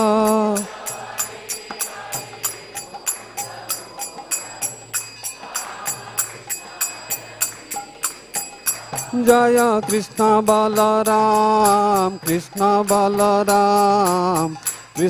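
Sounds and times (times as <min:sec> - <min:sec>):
person singing: 0:00.0 - 0:00.7.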